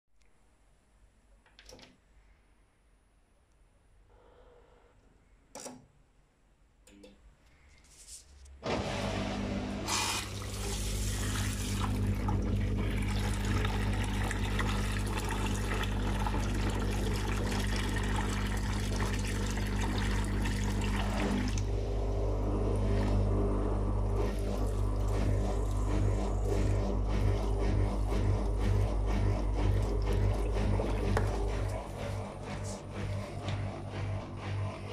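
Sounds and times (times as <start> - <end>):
washing machine pump humming: 8.6 - 34.9
water gushing into a bucket: 9.8 - 21.7, 23.8 - 32.8.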